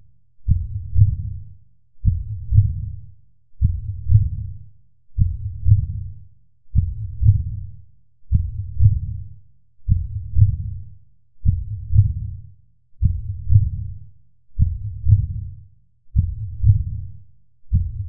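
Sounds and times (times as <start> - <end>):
slow heartbeat: 0.5 - 1.4, 2.0 - 3.0, 3.6 - 4.6, 5.2 - 6.1, 6.7 - 7.7, 8.3 - 9.2, 9.9 - 10.8, 11.4 - 14.0, 14.6 - 18.0.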